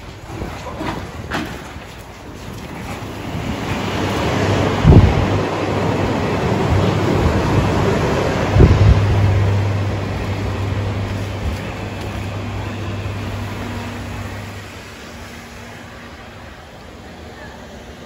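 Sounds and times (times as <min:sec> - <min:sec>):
even rushing noise: 0:03.0 - 0:16.8
steady low hum: 0:04.8 - 0:17.2.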